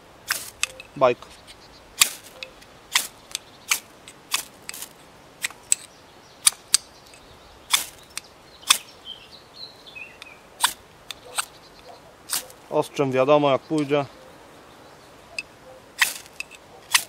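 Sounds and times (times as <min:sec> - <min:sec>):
knife scraping ferrocerium rod: 0:00.3 - 0:08.9, 0:15.4 - 0:17.0.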